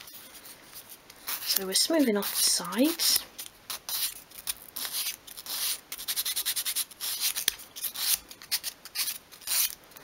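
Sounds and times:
sandpaper scratching on wood: 4.8 - 9.7.

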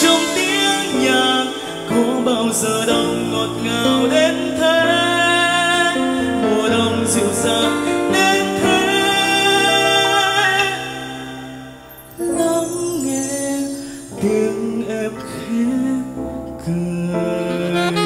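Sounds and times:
band playing: 0.0 - 5.7, 17.5 - 18.0
man singing pop ballad: 0.0 - 18.0.

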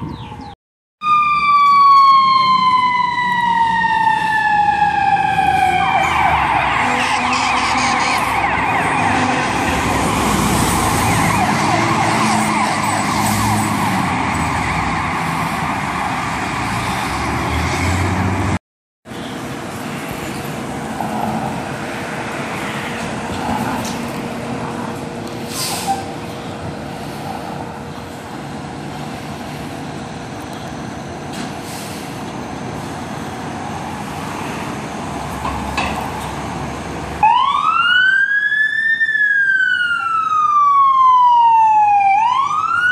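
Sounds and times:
street noise: 0.0 - 42.9
fire truck siren: 0.3 - 18.6, 36.6 - 42.9
truck driving: 1.2 - 38.1.

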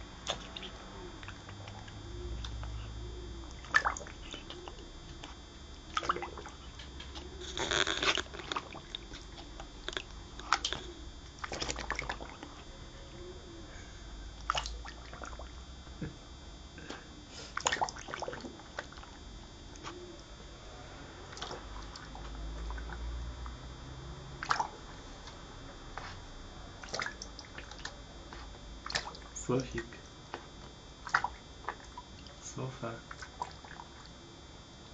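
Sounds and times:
dog blowing bubbles in water: 3.4 - 12.6, 14.4 - 16.2, 16.8 - 19.2.

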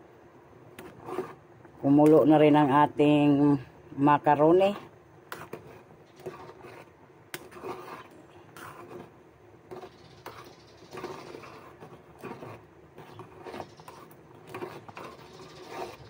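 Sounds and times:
metal spoon scraping a pot: 0.8 - 1.4, 4.7 - 9.1, 9.7 - 16.0
water boiling: 0.8 - 16.0.

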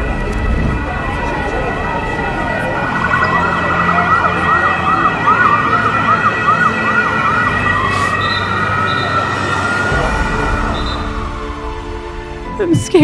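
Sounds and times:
ambulance siren: 0.0 - 12.6.

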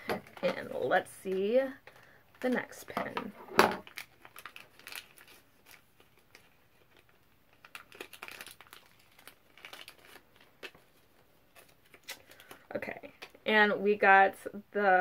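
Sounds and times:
paper crinkling and tearing: 3.8 - 12.9.

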